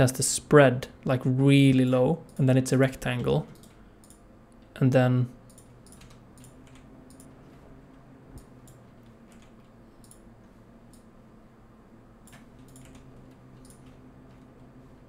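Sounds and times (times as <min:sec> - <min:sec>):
low steady hum: 0:00.0 - 0:15.0
keyboard and mouse clicks: 0:03.5 - 0:04.2, 0:05.5 - 0:07.6, 0:08.3 - 0:10.3, 0:12.2 - 0:14.6.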